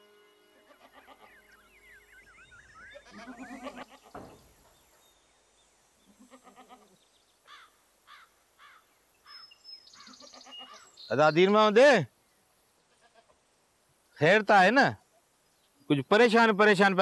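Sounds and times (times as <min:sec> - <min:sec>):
birds chirping: 0:00.0 - 0:13.1, 0:14.0 - 0:17.0
goats bleating faintly: 0:00.6 - 0:01.6, 0:02.9 - 0:04.4, 0:06.1 - 0:08.8, 0:12.9 - 0:13.4.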